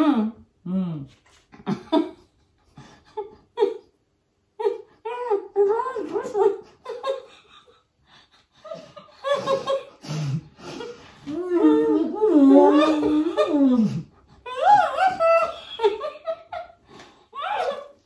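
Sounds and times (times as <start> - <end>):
woman laughing with full mouth: 6.2 - 18.0.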